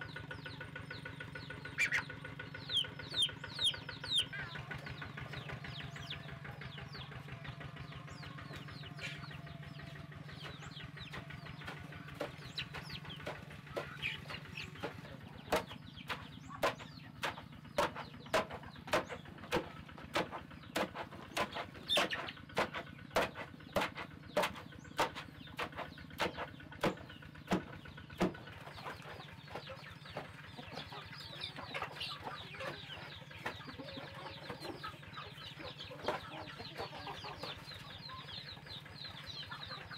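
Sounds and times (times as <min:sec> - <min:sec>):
chickens clucking: 0:00.0 - 0:39.9
chicks peeping: 0:00.0 - 0:39.9
pestle pounding in wooden mortar: 0:11.6 - 0:28.5.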